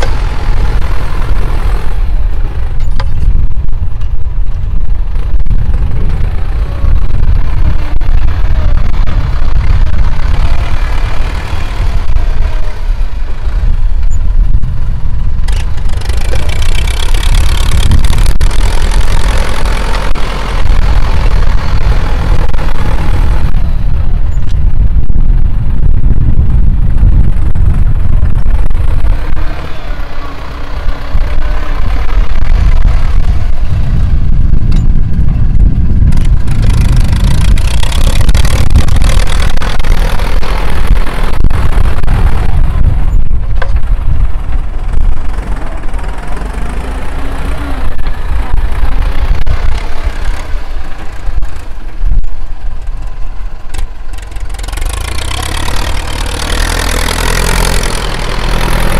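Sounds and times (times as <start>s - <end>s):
tractor diesel engine working hard: 0.0s - 58.9s.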